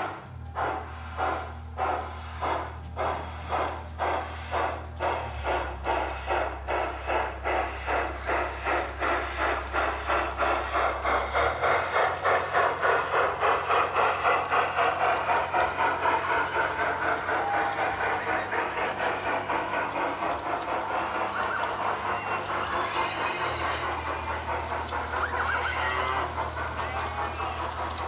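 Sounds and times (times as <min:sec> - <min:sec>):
freight cars rolling on track: 0:00.0 - 0:28.0
model steam locomotive chuffing: 0:00.0 - 0:28.0
rumble of wheels: 0:00.0 - 0:28.0.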